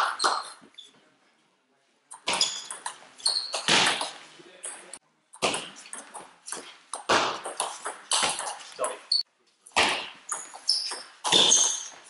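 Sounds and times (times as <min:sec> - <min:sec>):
short high squeaks: 0:02.3 - 0:03.7, 0:10.3 - 0:12.0.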